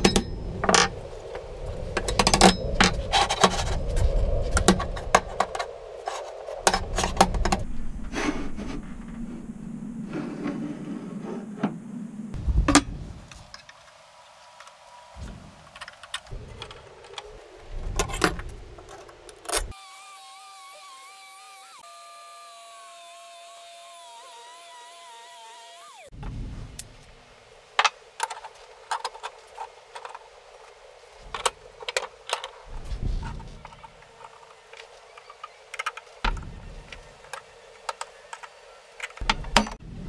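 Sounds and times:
angle grinder cutting steel: 0:19.8 - 0:26.1.

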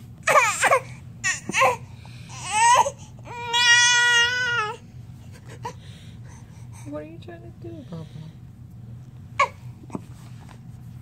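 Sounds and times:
baby crying: 0:00.2 - 0:04.8.

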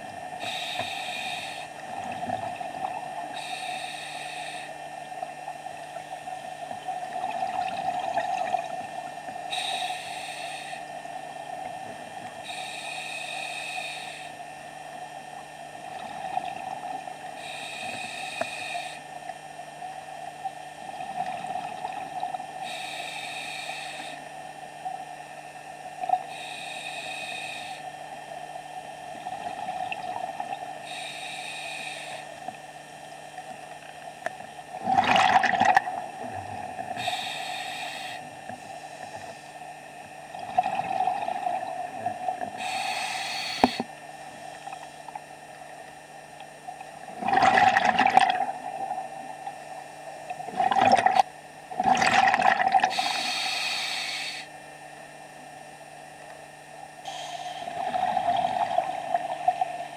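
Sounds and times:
steady hum: 0:00.0 - 0:59.9
diver breathing through regulator: 0:00.4 - 0:01.8, 0:03.3 - 0:04.8, 0:09.5 - 0:10.9, 0:12.4 - 0:14.4, 0:17.4 - 0:19.1, 0:22.6 - 0:24.3, 0:26.2 - 0:28.0, 0:30.8 - 0:32.4, 0:36.7 - 0:39.5, 0:42.4 - 0:44.9, 0:52.8 - 0:54.6, 0:57.1 - 0:59.9
exhaled bubbles bursting: 0:34.8 - 0:36.0, 0:47.1 - 0:48.7, 0:50.5 - 0:52.9.

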